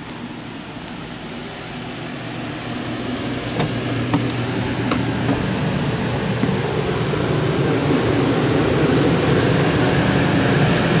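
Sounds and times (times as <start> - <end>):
machine hum with fan rush: 0.0 - 11.0
light knocks: 3.5 - 7.0.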